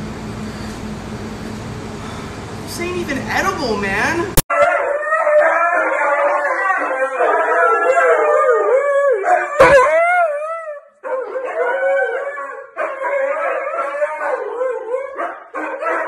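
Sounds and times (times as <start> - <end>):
huskies howling: 4.5 - 16.0.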